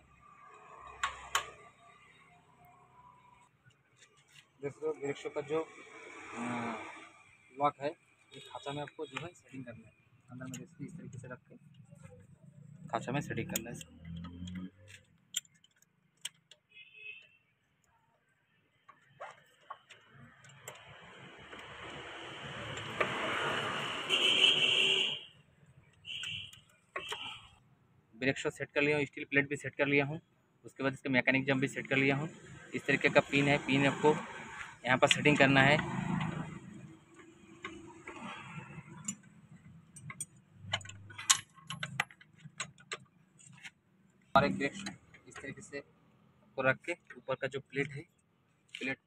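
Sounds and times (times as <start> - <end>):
metal clicks and taps: 13.5 - 16.7, 39.9 - 43.7.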